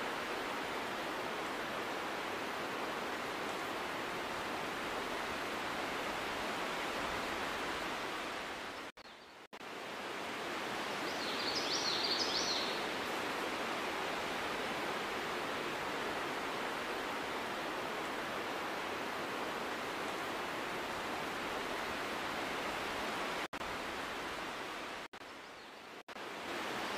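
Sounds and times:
rushing outdoor background noise: 0.0s - 26.9s.

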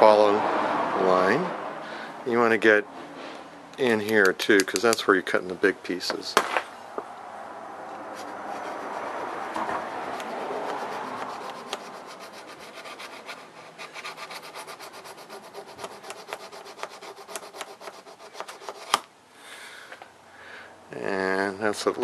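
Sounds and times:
sharp click: 3.7s - 5.1s
diamond hone rasping on blade: 8.2s - 19.0s.

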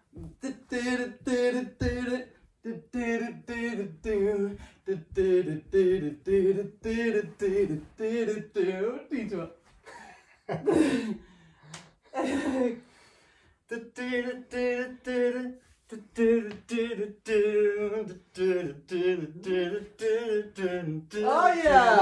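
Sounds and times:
person singing: 0.0s - 9.2s, 13.7s - 22.0s.

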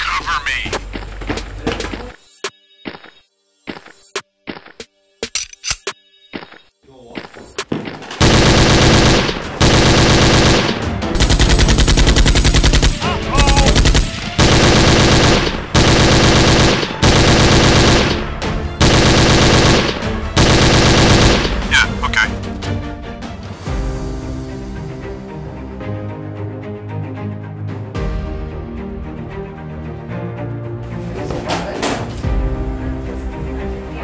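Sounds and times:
machine gun automatic fire: 8.0s - 21.9s.

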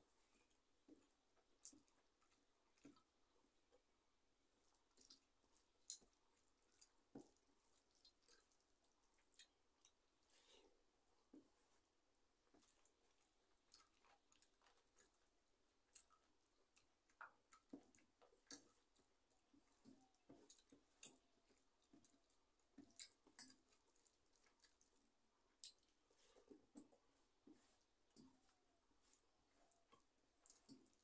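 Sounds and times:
person chewing: 4.6s - 10.7s, 12.6s - 31.0s
fingers mixing rice on steel plate: 4.6s - 31.0s.

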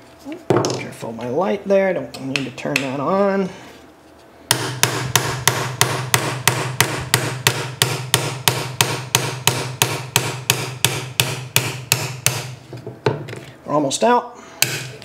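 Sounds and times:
hammer tapping on punch: 4.5s - 12.6s, 14.6s - 15.0s.

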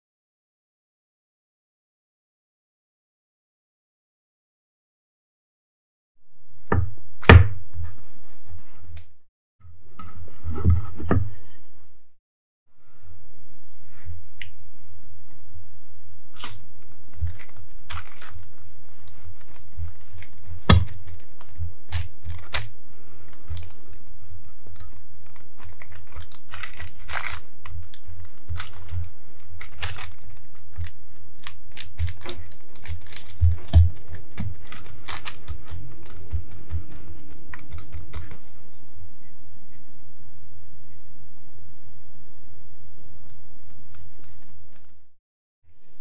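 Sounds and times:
steady low hum: 6.2s - 46.0s
paper rustling: 16.4s - 38.8s.

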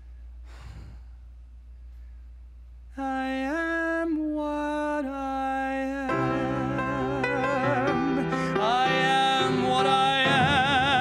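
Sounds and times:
man singing long notes: 3.0s - 11.0s.

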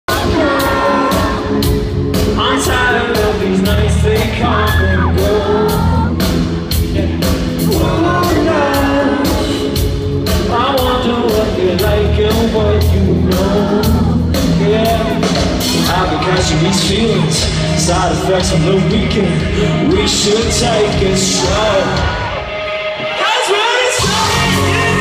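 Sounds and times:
person singing: 0.0s - 1.7s, 2.3s - 25.0s
electric guitars: 0.1s - 25.0s
keyboard: 0.1s - 25.0s
steady drum beat: 0.1s - 25.0s.

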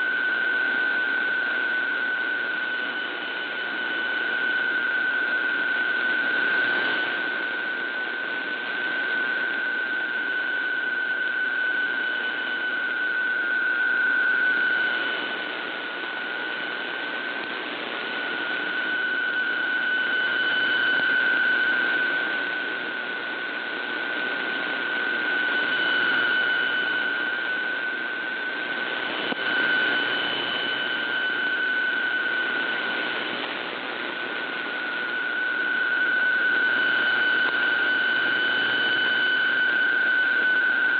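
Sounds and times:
mid-pitched data tone: 0.0s - 40.9s
radio static hiss: 28.6s - 31.2s.

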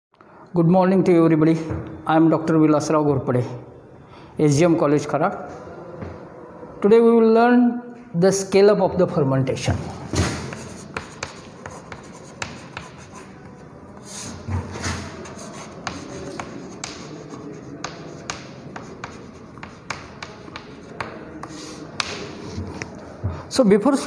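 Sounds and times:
chalk writing on chalkboard: 10.1s - 23.0s.

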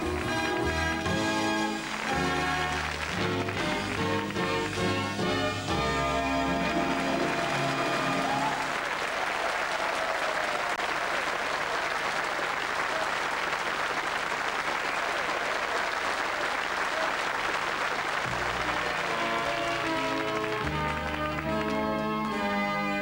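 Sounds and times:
backing music: 0.0s - 8.8s, 18.2s - 23.0s
audience applauding: 0.0s - 23.0s.

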